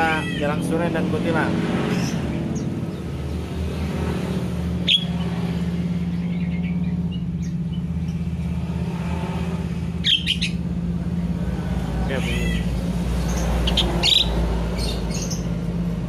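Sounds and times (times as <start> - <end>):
birds calling sharply: 0.0 - 16.0.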